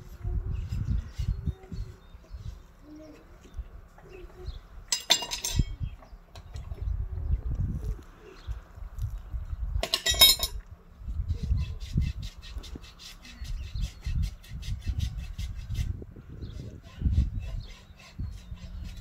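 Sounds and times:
metal tool clanking: 4.9s - 5.8s, 9.8s - 10.6s
hoof rasp scraping hoof: 11.3s - 19.0s.

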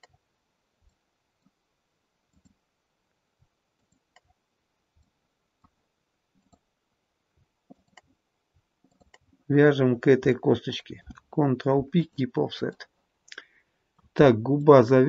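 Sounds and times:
computer mouse clicks: 2.3s - 2.6s, 3.8s - 4.4s, 6.4s - 6.7s, 7.7s - 8.1s, 8.8s - 9.3s.

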